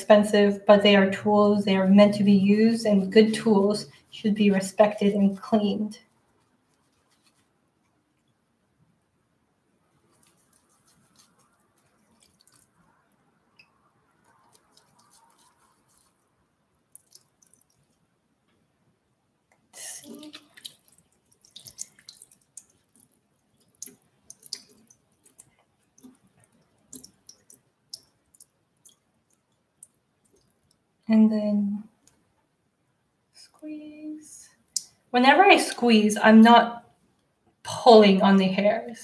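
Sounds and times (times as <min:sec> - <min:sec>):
splashes and drips: 0:10.1 - 0:13.0, 0:13.6 - 0:18.1, 0:19.8 - 0:30.9
sink tap water running: 0:19.8 - 0:22.7.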